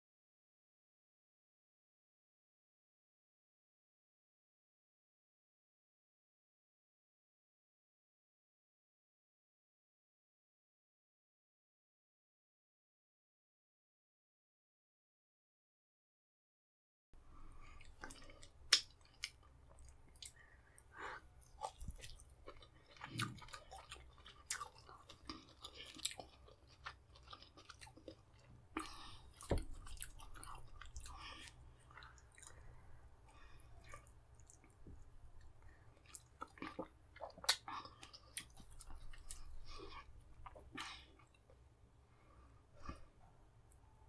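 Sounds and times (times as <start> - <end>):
man chewing food: 17.3 - 43.9.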